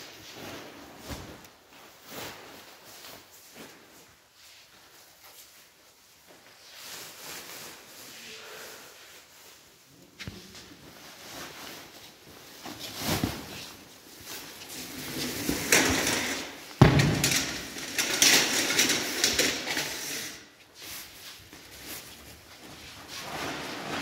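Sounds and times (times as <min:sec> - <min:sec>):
rustling and clattering: 0:09.2 - 0:24.0.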